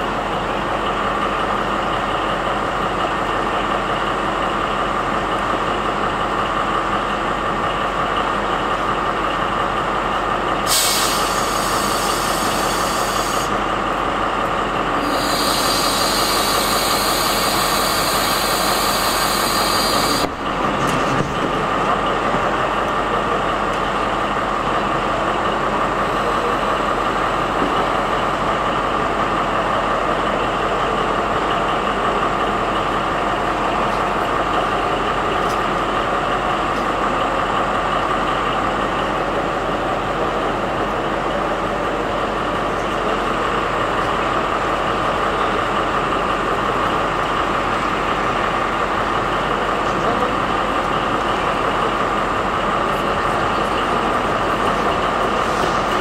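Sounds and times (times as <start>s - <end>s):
diesel locomotive engine idling: 0.0s - 56.0s
compressed air hissing: 10.7s - 13.6s, 15.0s - 20.3s.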